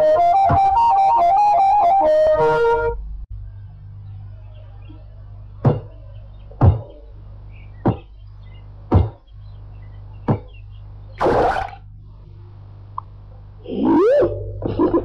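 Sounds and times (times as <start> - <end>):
steady low hum: 0.0 - 15.0
short sharp cartoon thuds: 8.9 - 9.2.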